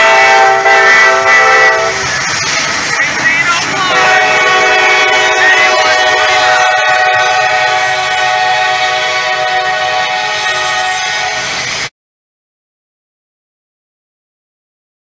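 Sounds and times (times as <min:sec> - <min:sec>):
locomotive air horn blast: 0:00.0 - 0:02.1, 0:03.9 - 0:11.6
train passing: 0:00.0 - 0:11.9.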